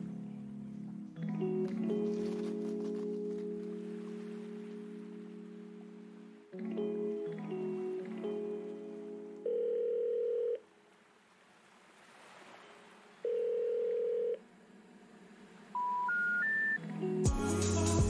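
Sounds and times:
telephone ringback tone: 9.4 - 10.6, 13.2 - 14.4.

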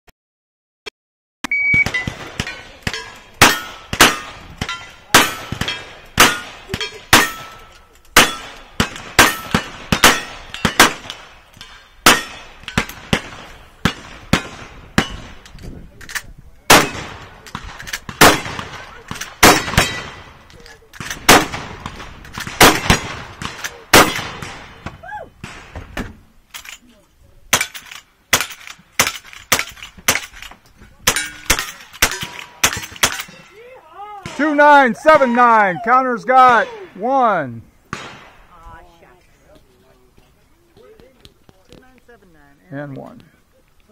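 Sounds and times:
shot timer beep: 1.4 - 2.1
gunshots: 1.7 - 15.4, 16.7 - 20.4, 21.0 - 26.0, 27.5 - 33.4, 36.3 - 38.5.

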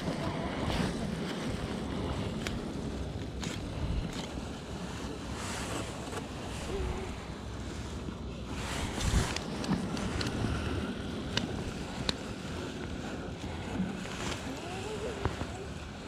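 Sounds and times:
wind noise: 0.0 - 16.0
clothing rubbing on microphone: 8.4 - 10.8.

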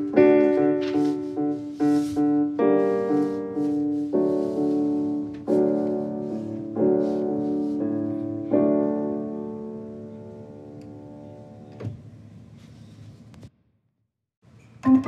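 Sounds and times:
slow piano music: 0.0 - 11.8, 14.8 - 15.0.

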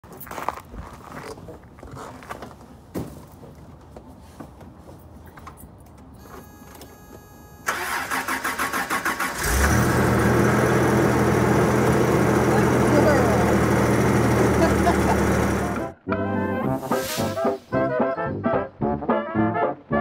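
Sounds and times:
starter motor cranking: 7.7 - 15.9
engine idling: 7.8 - 15.9.

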